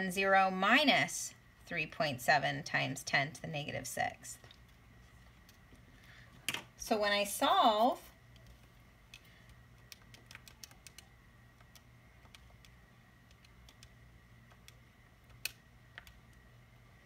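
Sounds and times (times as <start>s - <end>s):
calculator keys clicking: 8.3s - 16.4s.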